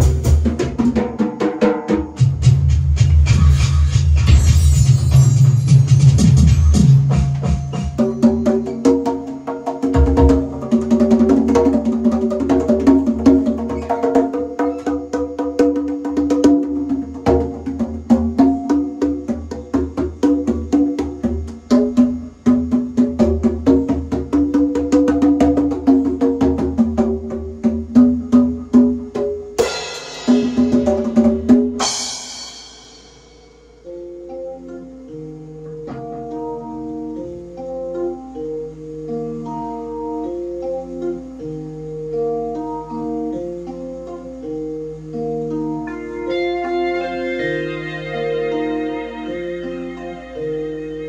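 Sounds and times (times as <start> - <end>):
congas played fast: 0.0 - 33.9
sustained pitched backing tones: 5.1 - 51.0
cymbal crashes: 29.6 - 31.1, 31.8 - 33.8.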